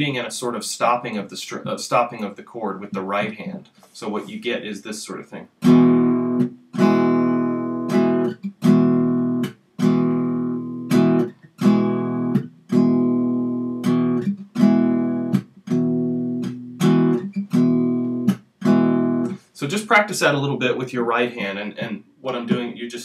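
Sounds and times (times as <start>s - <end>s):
palm-muted acoustic guitar strumming: 5.6s - 19.5s.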